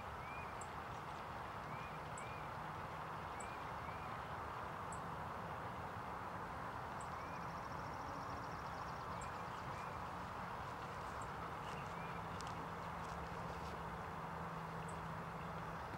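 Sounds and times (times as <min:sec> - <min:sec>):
faint steady hum: 0:00.0 - 0:15.9
distant bird chirps: 0:00.2 - 0:04.3, 0:06.9 - 0:14.0.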